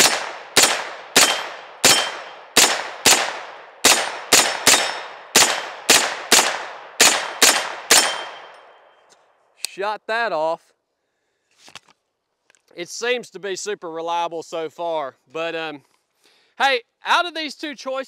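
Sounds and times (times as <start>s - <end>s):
gunshots with echo: 0.0s - 8.7s.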